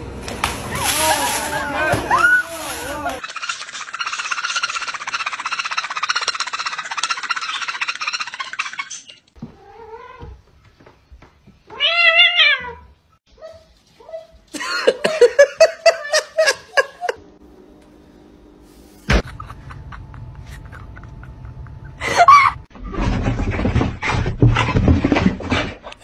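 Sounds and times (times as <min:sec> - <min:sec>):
dog yelping: 0:03.2 - 0:09.2
parrot squawking: 0:03.2 - 0:09.2
cat meowing: 0:11.7 - 0:12.9.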